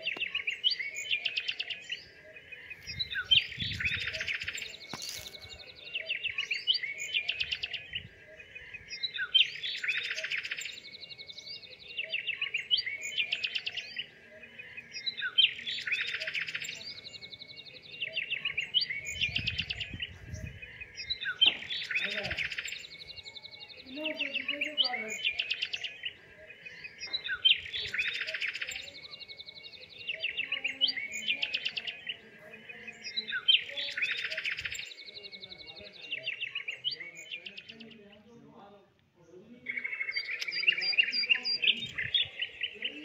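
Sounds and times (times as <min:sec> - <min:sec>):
small birds chirping: 0:00.0 - 0:43.0.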